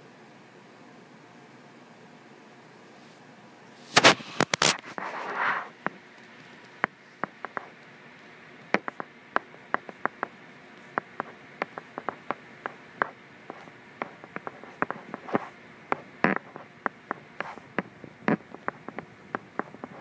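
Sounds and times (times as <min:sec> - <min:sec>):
stylus tapping on glass screen: 0:06.8 - 0:07.7, 0:08.7 - 0:20.0.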